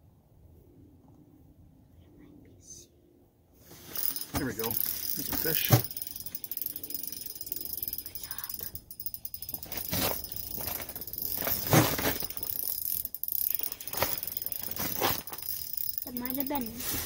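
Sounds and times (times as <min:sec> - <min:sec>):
fishing reel clicking: 0:04.0 - 0:16.8.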